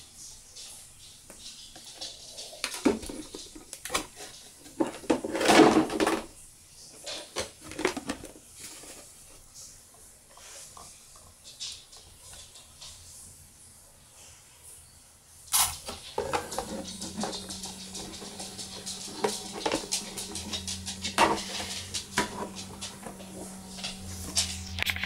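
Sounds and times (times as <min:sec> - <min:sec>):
plastic car body clicking and rustling: 0:02.6 - 0:06.4, 0:07.0 - 0:09.0.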